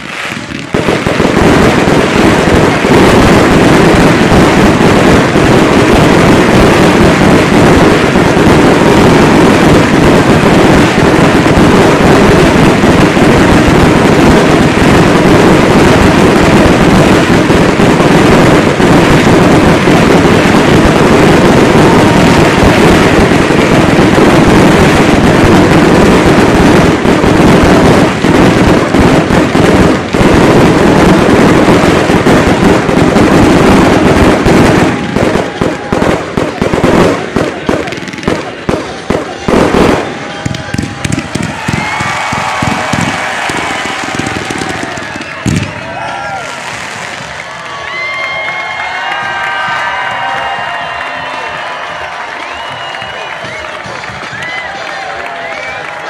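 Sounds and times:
fireworks barrage: 0:00.0 - 0:56.0.

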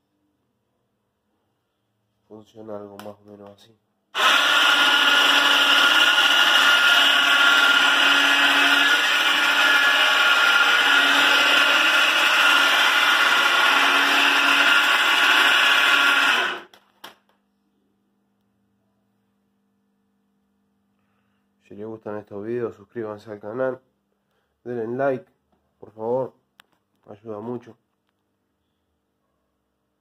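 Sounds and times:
electric winch motor whining: 0:04.2 - 0:16.7.

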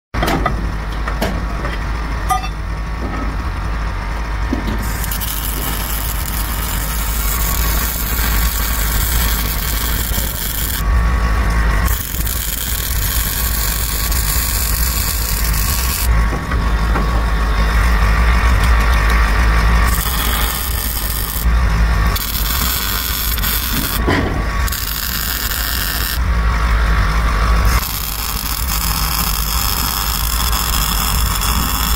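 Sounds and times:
low rumble: 0:00.5 - 0:24.7.

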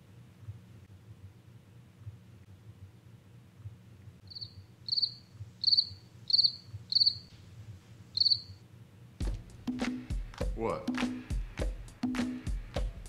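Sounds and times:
faint low hum: 0:00.0 - 0:09.4
cricket chirping: 0:04.2 - 0:07.3, 0:08.1 - 0:08.6.

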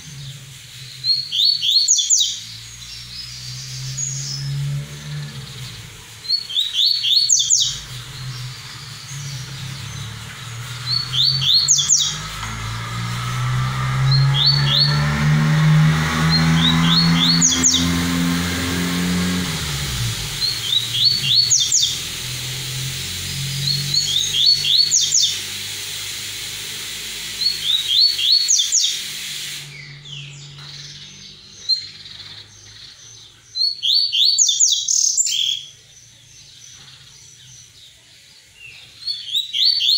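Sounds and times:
bird whistled song: 0:00.0 - 0:04.6, 0:05.2 - 0:12.6, 0:13.2 - 0:15.1, 0:16.1 - 0:18.1, 0:19.4 - 0:26.4, 0:27.2 - 0:35.8, 0:36.4 - 0:39.9
low engine drone: 0:00.0 - 0:33.3.

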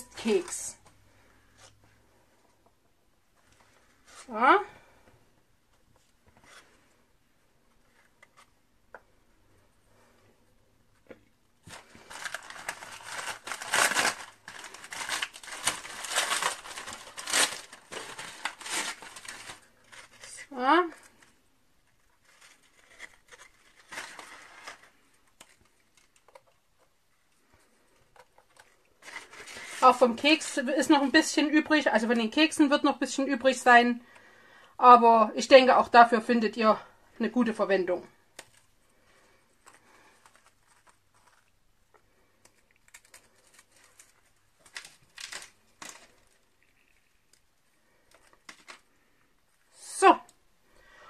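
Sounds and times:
soft clicks of biscuits: 0:25.0 - 0:29.2, 0:38.3 - 0:49.7.

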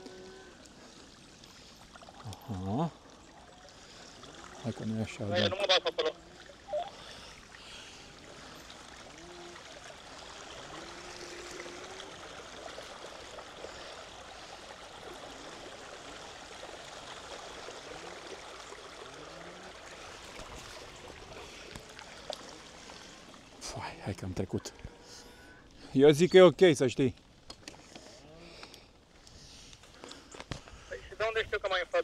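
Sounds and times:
bicycle tyres splashing through water: 0:06.6 - 0:23.7.

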